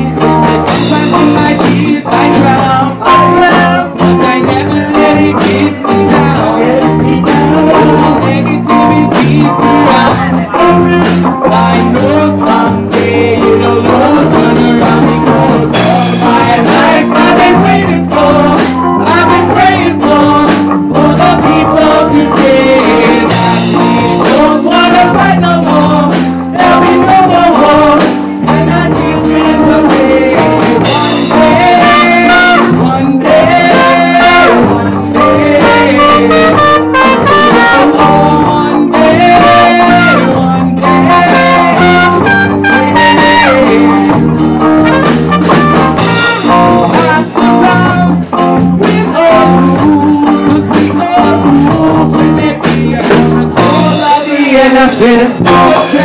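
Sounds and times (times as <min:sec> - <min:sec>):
drum kit: 0:00.0 - 0:56.0
electric guitar: 0:00.0 - 0:56.0
person singing: 0:00.0 - 0:56.0
trumpet: 0:30.8 - 0:48.2, 0:53.6 - 0:56.0.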